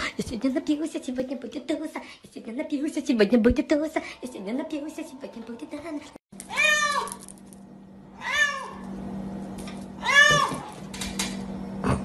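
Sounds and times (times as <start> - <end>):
steady low hum: 0.0 - 12.0
cat meowing: 8.2 - 8.8, 10.0 - 10.7.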